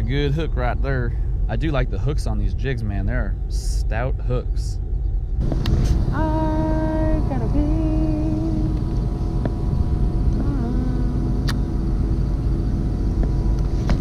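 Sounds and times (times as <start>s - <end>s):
wind rumble on microphone: 0.0s - 14.0s
woman humming: 6.2s - 8.8s, 10.3s - 11.6s.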